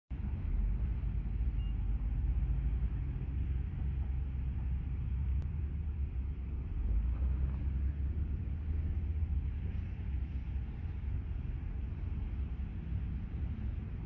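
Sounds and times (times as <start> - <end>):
steady low rumble: 0.1 - 14.0
faint high beep: 1.4 - 2.4.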